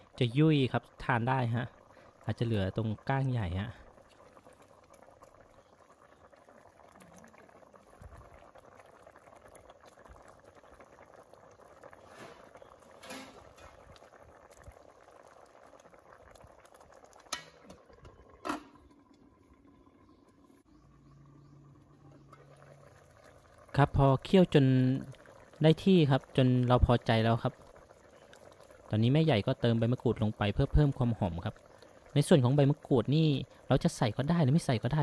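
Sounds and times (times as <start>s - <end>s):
stew bubbling in a pot: 0.0s - 35.0s
metal lid clinking on pot: 13.0s - 13.8s, 18.4s - 18.8s.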